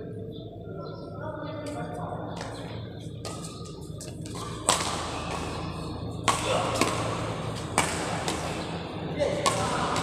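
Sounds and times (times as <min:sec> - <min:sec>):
steady low hum: 0:00.0 - 0:10.0
racket hitting shuttlecock: 0:04.3 - 0:10.0.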